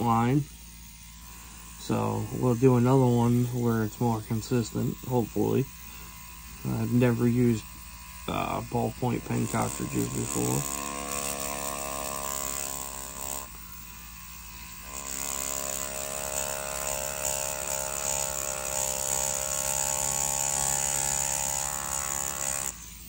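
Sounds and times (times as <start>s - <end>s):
tattoo machine motor buzz: 0.0s - 23.0s.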